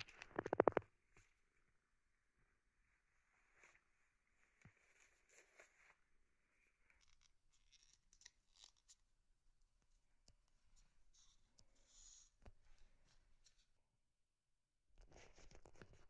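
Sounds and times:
soft rustles: 0:02.6 - 0:07.7.

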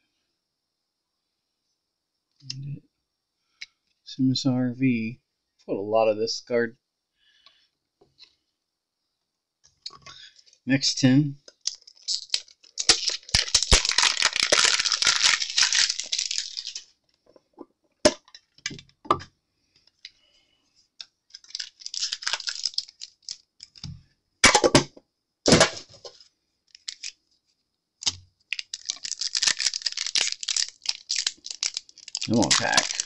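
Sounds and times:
packaging crinkling and tearing: 0:11.6 - 0:17.0, 0:21.3 - 0:23.8, 0:25.5 - 0:27.2, 0:28.0 - 0:33.0.

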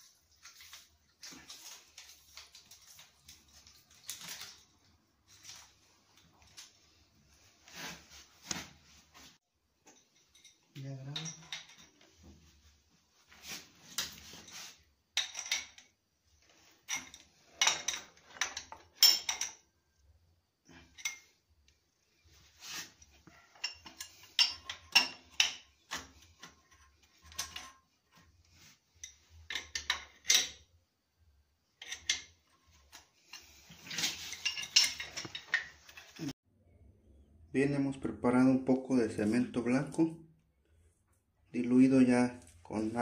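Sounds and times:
metal wrenches clinking on pipe fitting: 0:09.9 - 0:12.0, 0:15.2 - 0:16.0, 0:16.8 - 0:19.6, 0:23.5 - 0:27.8, 0:31.8 - 0:32.6, 0:33.3 - 0:36.2.

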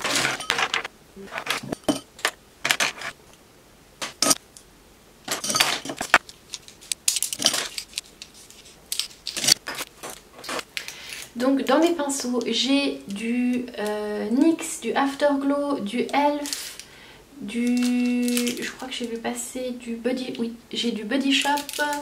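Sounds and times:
brushes clattering in glass jar: 0:00.0 - 0:00.9, 0:05.3 - 0:06.1, 0:07.1 - 0:07.9.

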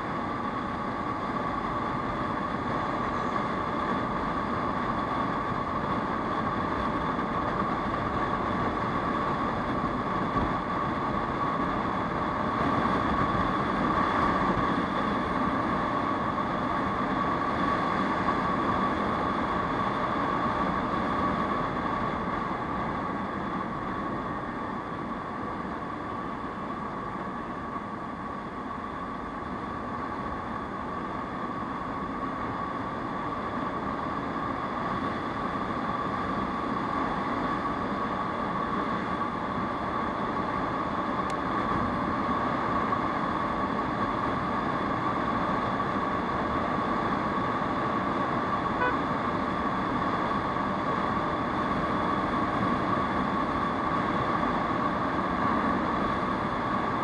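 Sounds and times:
wind and road noise: 0:00.0 - 0:57.0
scooter engine running: 0:48.7 - 0:49.1.

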